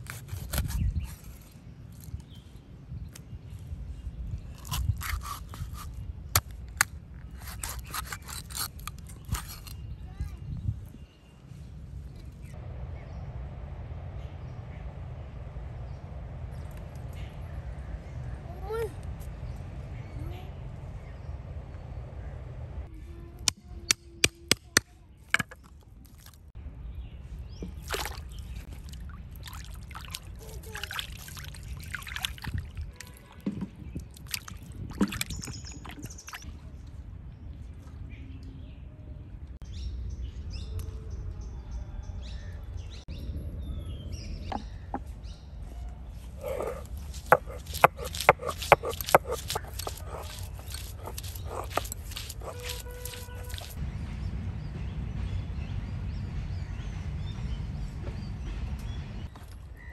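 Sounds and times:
knife scraping through fish: 0.0 - 1.5, 4.6 - 6.0, 7.4 - 9.8, 46.4 - 53.8
water splashing in a basin: 27.7 - 33.4, 34.0 - 36.5
knife knocking on wood: 46.4 - 53.7.

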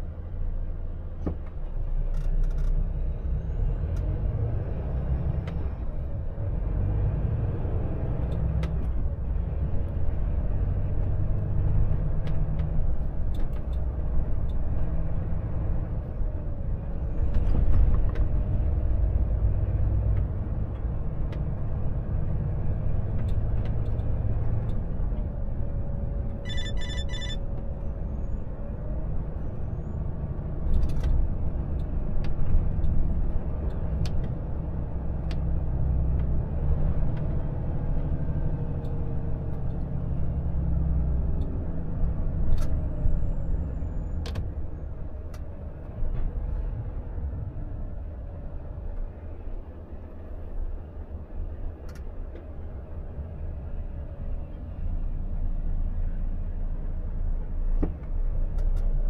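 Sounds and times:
road noise: 0.0 - 59.0
truck engine drone: 0.0 - 59.0
electronic beeps: 26.4 - 27.4.

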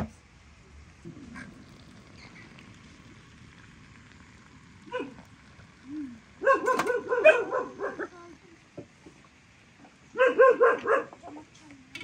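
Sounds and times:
water pouring into teapot: 0.5 - 9.8
dog yelping: 6.4 - 8.1, 10.2 - 11.1.

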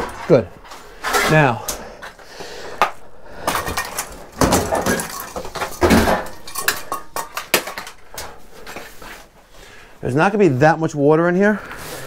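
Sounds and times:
metal clanks and knocks: 3.4 - 8.3.

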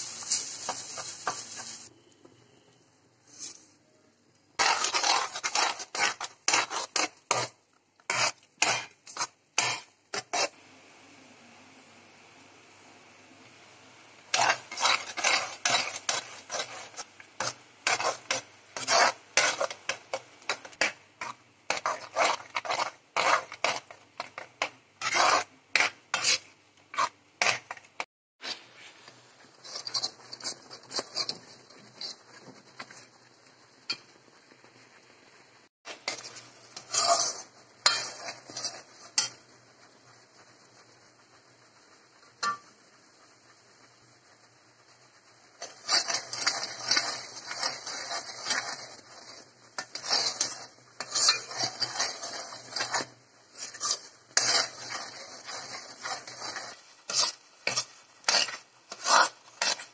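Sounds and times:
spoon scraping paste in metal pan: 0.2 - 2.0, 3.2 - 3.8, 4.6 - 10.6, 14.3 - 33.3, 35.9 - 39.4, 45.6 - 59.9.

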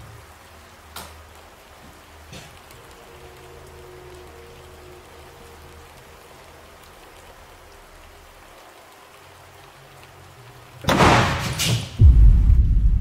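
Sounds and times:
faint steady hiss: 0.0 - 12.2.

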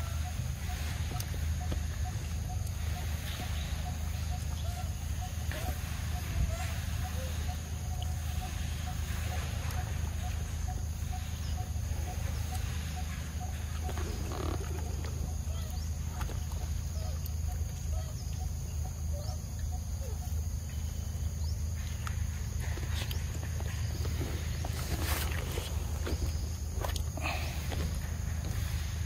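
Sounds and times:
rustle: 0.0 - 29.0
steady low hum: 0.0 - 29.0.

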